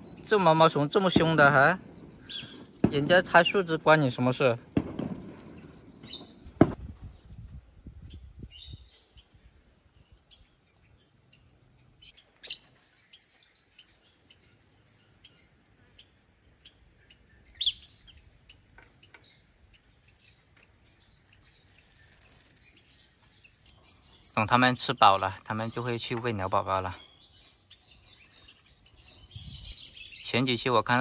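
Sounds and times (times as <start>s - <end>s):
lovebirds chirping: 0.0s - 31.0s
sharp knock: 6.6s - 6.8s.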